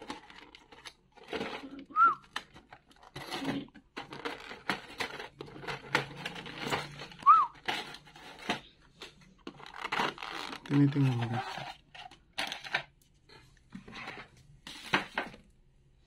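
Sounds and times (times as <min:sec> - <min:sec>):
plastic packaging crinkling: 0:00.0 - 0:08.7, 0:09.4 - 0:12.9.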